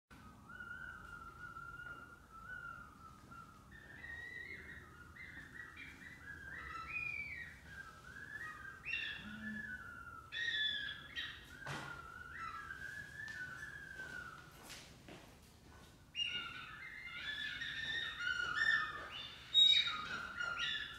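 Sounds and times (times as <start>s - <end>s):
high hand whistling: 0.2s - 14.8s.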